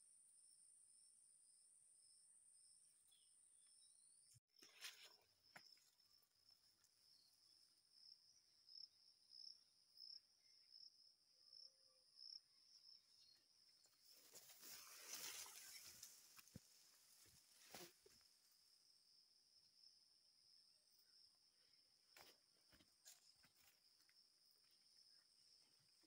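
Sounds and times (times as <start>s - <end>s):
brief rustle: 14.2s - 18.1s.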